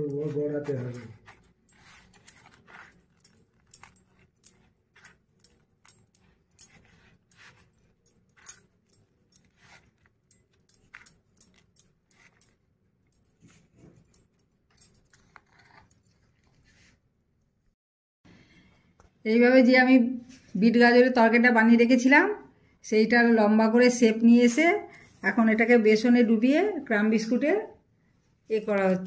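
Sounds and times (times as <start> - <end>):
crumbs scratching on steel plate: 0.0 - 12.6.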